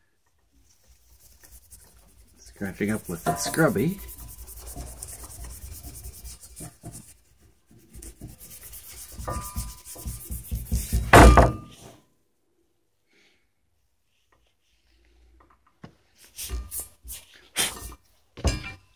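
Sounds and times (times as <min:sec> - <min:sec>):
scrubbing pad rubbing on metal: 0:00.6 - 0:11.1.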